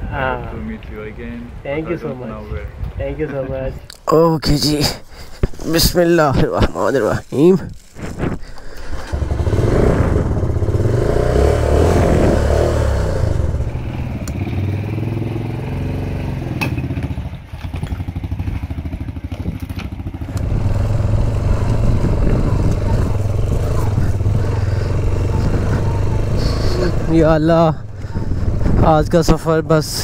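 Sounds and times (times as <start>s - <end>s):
tyres on gravel: 3.9s - 9.4s
motorcycle engine running: 7.1s - 30.0s.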